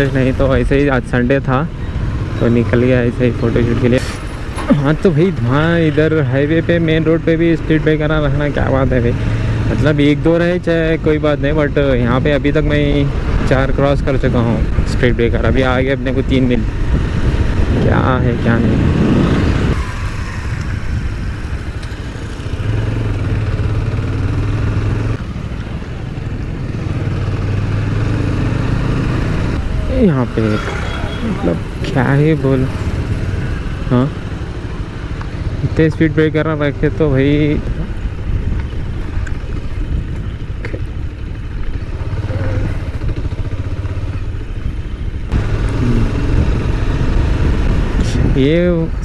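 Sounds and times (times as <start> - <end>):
road and wind noise: 0.0 - 49.0
motorcycle engine pulling away: 18.6 - 35.5, 36.8 - 48.2.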